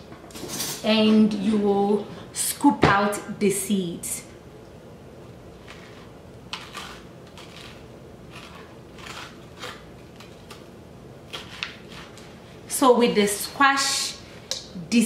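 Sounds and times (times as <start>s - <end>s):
metal spoon scraping squash: 5.6s - 10.6s, 11.3s - 12.4s.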